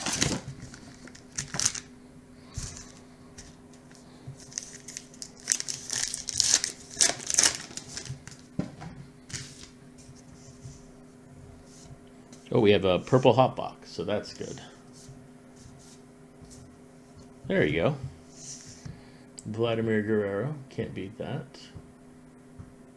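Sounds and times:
wrapper tearing and crinkling: 0.0 - 1.9, 4.5 - 8.5
faint steady hum: 0.0 - 22.9.

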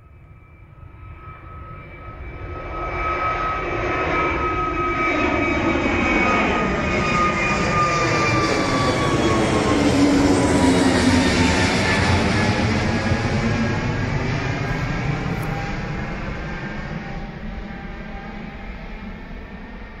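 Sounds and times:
jet engines approaching: 0.0 - 20.0
high engine whine falling: 0.1 - 20.0.

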